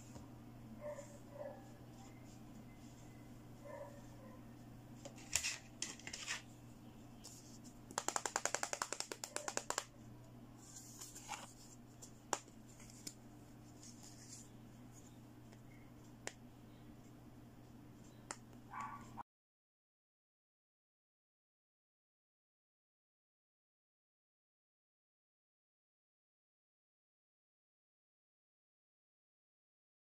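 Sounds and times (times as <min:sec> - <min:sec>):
faint steady hum: 0:00.0 - 0:19.2.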